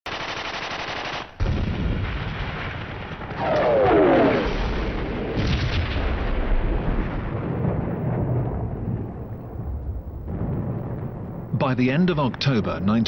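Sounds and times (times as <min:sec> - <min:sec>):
rapid gunfire rattle: 0:00.1 - 0:01.4
sharp cracks: 0:00.1 - 0:11.9
rumbling explosions: 0:01.4 - 0:13.0.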